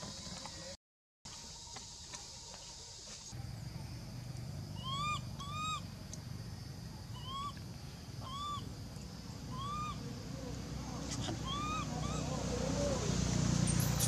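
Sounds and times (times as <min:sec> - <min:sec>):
whistle-like animal calls: 0:04.8 - 0:05.8, 0:07.2 - 0:07.6, 0:08.2 - 0:08.6, 0:09.5 - 0:10.0, 0:11.4 - 0:12.4.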